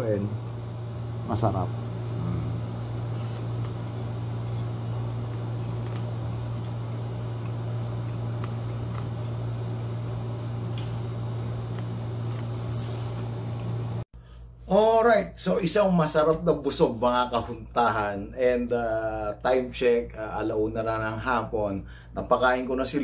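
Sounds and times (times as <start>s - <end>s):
low mechanical hum: 0.0s - 23.0s
person eating and chewing: 2.2s - 9.9s.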